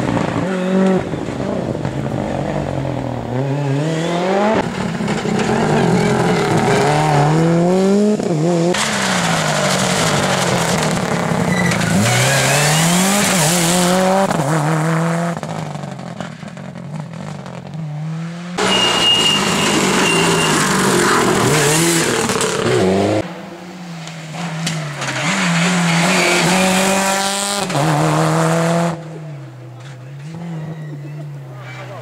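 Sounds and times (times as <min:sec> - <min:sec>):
rally car engine revving past: 0:24.6 - 0:29.2.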